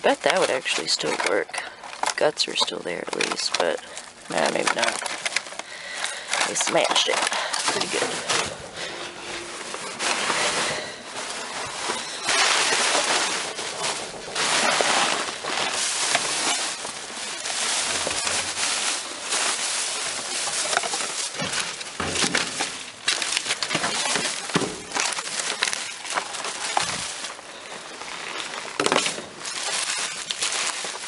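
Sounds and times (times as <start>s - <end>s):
crinkling of plastic and paper: 0.0s - 31.0s
clicks and knocks of items: 0.2s - 17.0s, 20.2s - 27.5s.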